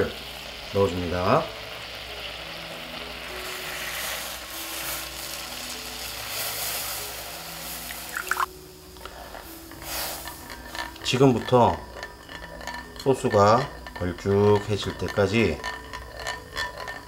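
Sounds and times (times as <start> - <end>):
sauce bubbling: 1.6 - 17.0.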